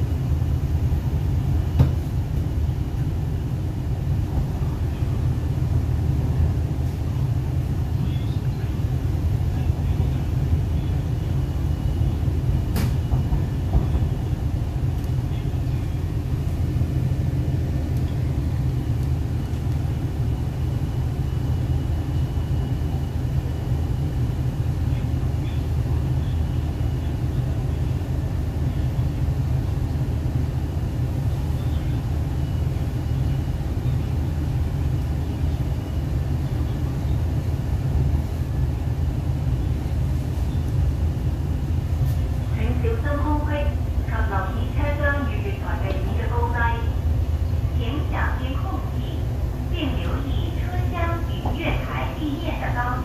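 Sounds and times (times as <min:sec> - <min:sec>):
train running on track: 0:00.0 - 0:53.0.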